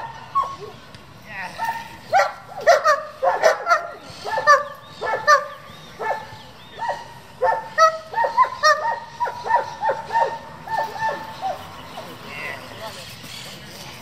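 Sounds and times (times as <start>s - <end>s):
dog barking: 1.6s - 11.6s.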